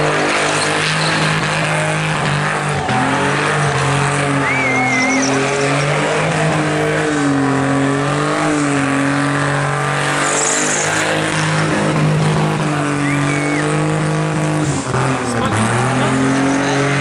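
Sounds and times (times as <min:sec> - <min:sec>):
car engine at high revs: 0:00.0 - 0:17.0
spinning tyres screeching: 0:00.0 - 0:17.0.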